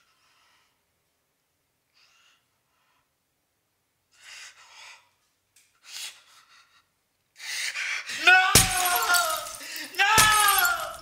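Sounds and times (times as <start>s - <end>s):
man breathing heavily: 9.5s - 10.0s.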